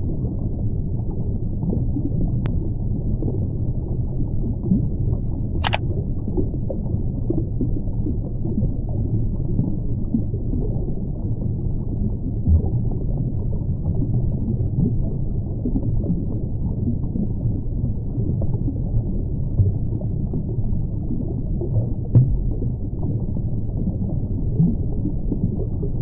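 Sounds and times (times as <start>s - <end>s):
low underwater rumble: 17.6s - 26.0s.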